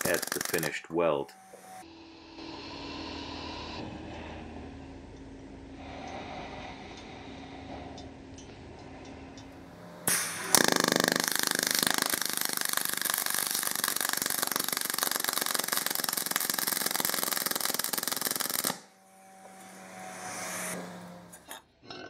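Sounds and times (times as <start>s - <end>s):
welding arc crackling buzz: 0.0s - 3.0s, 9.7s - 21.6s.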